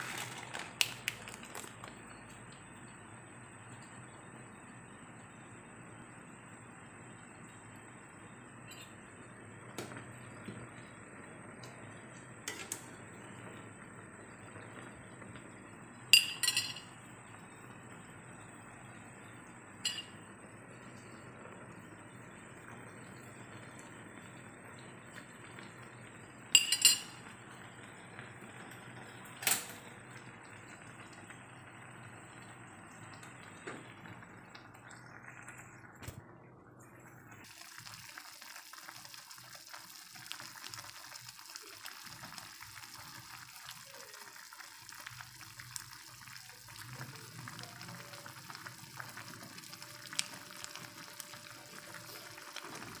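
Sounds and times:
noodles simmering in water: 0:00.0 - 0:53.0
metal spoon clinking against pan: 0:16.2 - 0:16.9, 0:19.8 - 0:20.2, 0:26.6 - 0:27.2.

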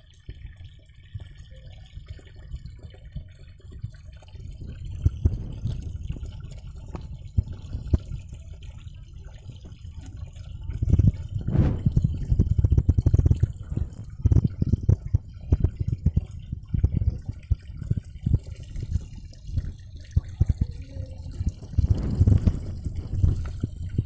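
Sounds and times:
low underwater thumps: 0:02.0 - 0:24.0
muffled water sloshing: 0:02.3 - 0:24.0.

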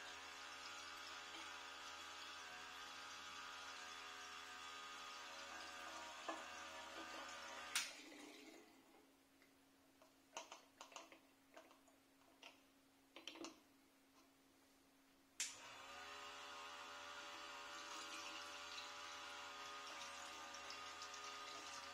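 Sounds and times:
electric pump humming: 0:00.0 - 0:08.1, 0:15.4 - 0:21.9.

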